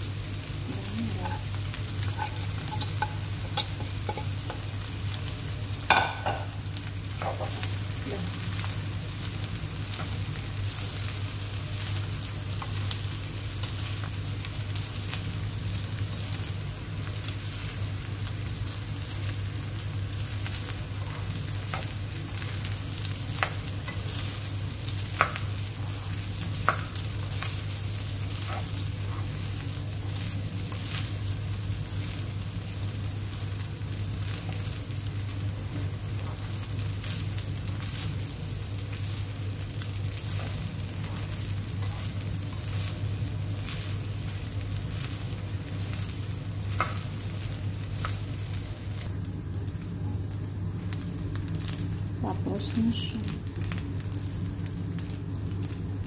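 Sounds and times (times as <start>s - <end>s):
fried rice sizzling in a pan: 0.0s - 56.0s
spatula tapping a pan: 2.1s - 4.7s, 5.9s - 6.5s.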